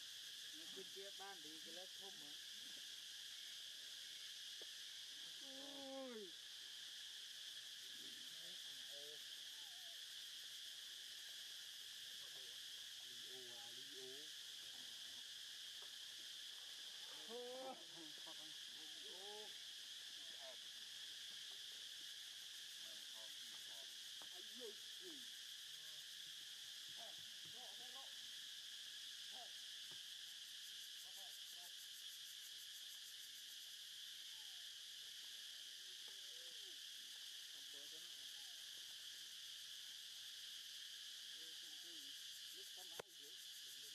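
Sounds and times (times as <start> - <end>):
insects droning: 0.0 - 43.9.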